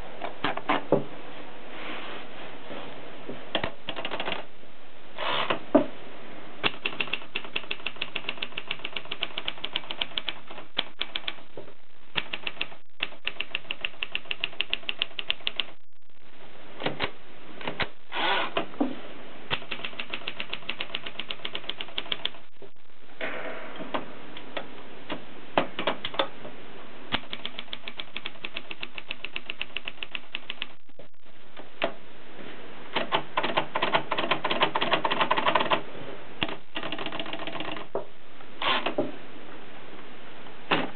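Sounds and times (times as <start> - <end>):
typewriter keys clacking: 6.6 - 11.4, 12.2 - 15.8, 19.5 - 22.4, 27.1 - 30.8, 33.0 - 35.8.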